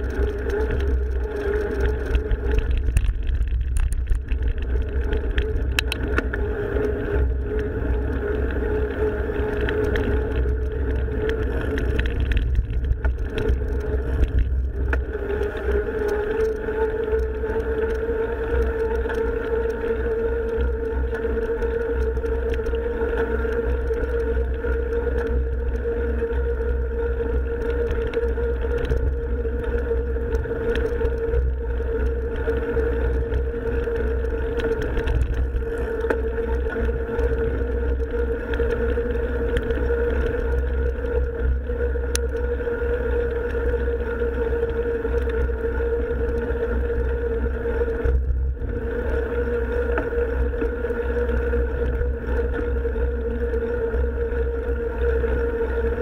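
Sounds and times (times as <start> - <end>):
bike clicks and rattles: 0.0 - 26.5, 27.5 - 42.5
mountain bike running hum: 0.0 - 56.0.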